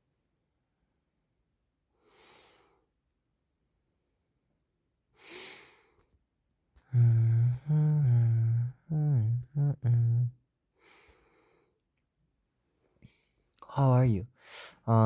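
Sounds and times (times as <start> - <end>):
man humming low notes: 6.8 - 10.4
man sighing: 6.8 - 11.1.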